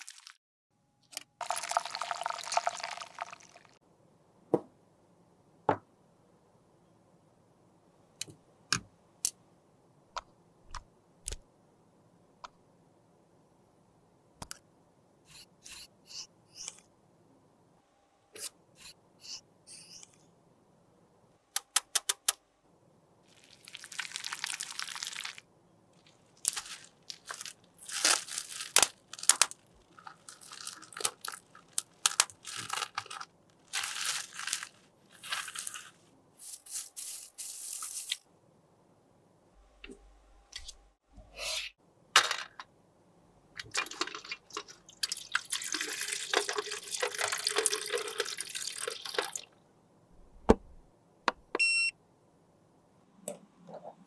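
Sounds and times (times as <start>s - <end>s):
bubble wrap crinkling and tearing: 0.0s - 0.4s, 23.3s - 25.4s, 26.0s - 38.2s.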